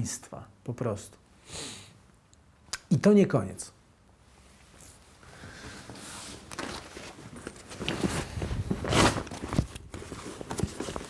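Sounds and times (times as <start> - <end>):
clothing rustling: 4.2 - 11.0.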